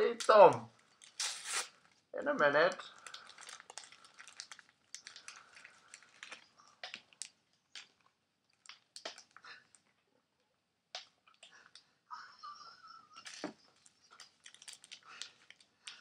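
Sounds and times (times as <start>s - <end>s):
wrapper crinkling: 0.5s - 2.1s, 2.8s - 9.9s, 13.2s - 16.0s
ice cream crunching as chewed: 2.8s - 9.9s, 13.8s - 16.0s.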